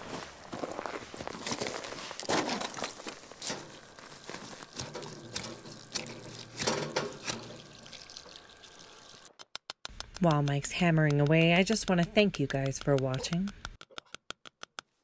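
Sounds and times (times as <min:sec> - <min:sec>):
gravel scraping and crunching: 0:00.0 - 0:07.6
water splashing onto dirt: 0:03.2 - 0:09.3.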